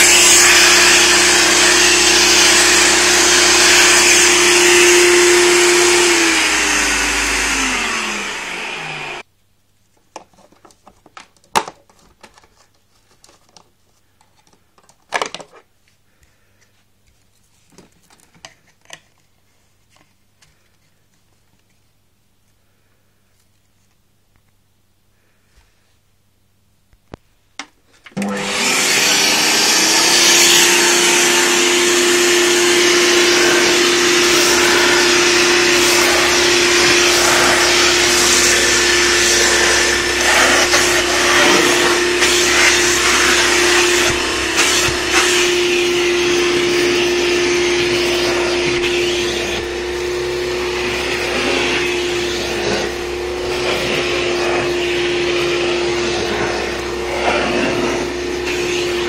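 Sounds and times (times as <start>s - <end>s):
vacuum cleaner running: 0.0s - 9.3s, 28.2s - 59.0s.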